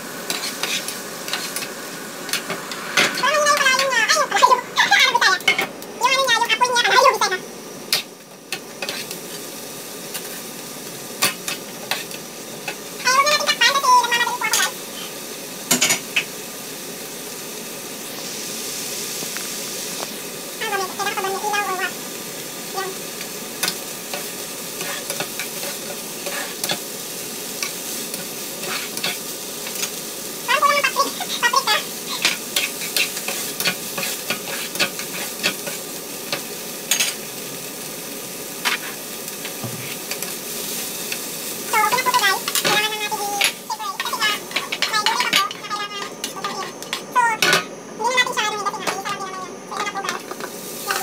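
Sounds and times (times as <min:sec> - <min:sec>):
food sizzling in a frying pan: 0:00.0 - 0:51.0
spatula scraping a pan: 0:00.2 - 0:03.9, 0:07.9 - 0:09.2, 0:11.2 - 0:12.2, 0:23.6 - 0:26.8, 0:27.6 - 0:30.0, 0:32.1 - 0:37.2, 0:38.6 - 0:40.3
spatula clacking down: 0:27.6 - 0:29.9, 0:31.6 - 0:37.2, 0:41.8 - 0:47.7.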